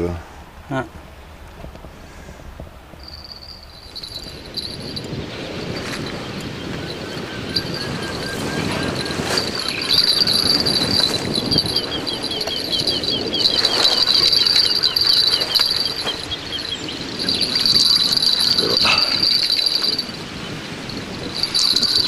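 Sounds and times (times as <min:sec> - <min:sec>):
faint insect chirps: 0:03.0 - 0:22.0
insects trilling: 0:03.0 - 0:22.0.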